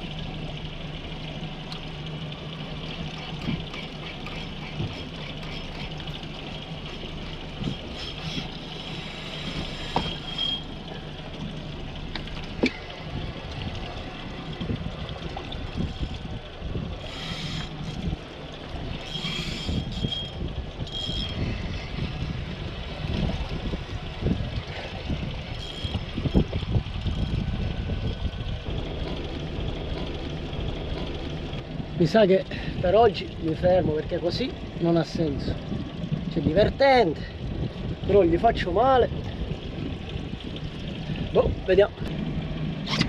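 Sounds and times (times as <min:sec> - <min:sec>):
low steady hum: 0:00.0 - 0:43.0
water lapping against boat hull: 0:00.0 - 0:43.0
wind gusts on microphone: 0:13.0 - 0:43.0.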